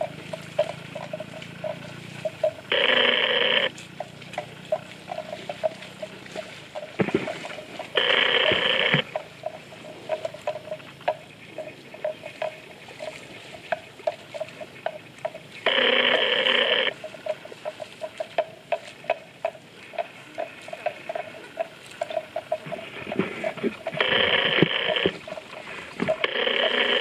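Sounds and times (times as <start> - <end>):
buffalo chewing wet grass: 0.0 - 27.0
loud steady ringing: 0.0 - 27.0.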